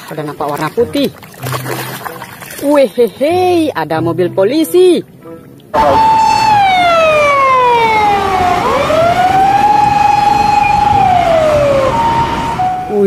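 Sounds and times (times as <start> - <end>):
wail siren: 5.8 - 13.0.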